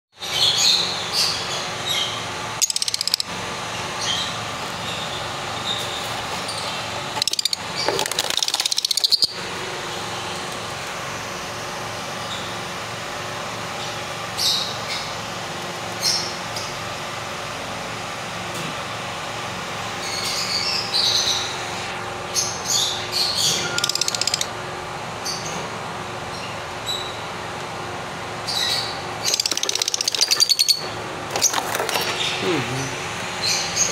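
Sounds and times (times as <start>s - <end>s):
steady background hum: 0.2s - 33.9s
lovebirds chirping: 8.5s - 9.4s, 22.4s - 24.5s.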